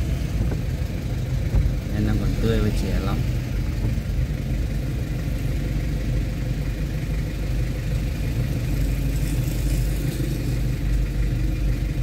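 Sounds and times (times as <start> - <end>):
road noise: 0.0 - 12.0
vehicle engine running: 0.0 - 12.0.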